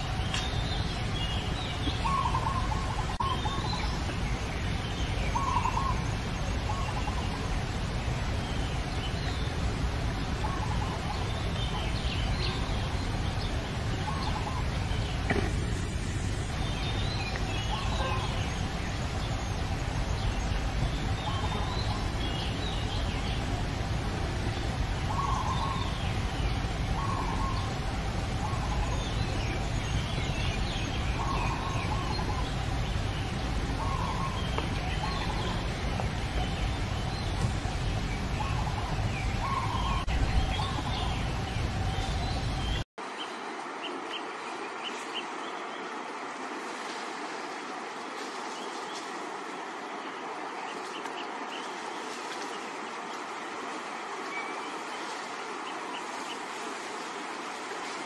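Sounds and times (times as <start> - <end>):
steady low rumble: 0.0 - 42.9.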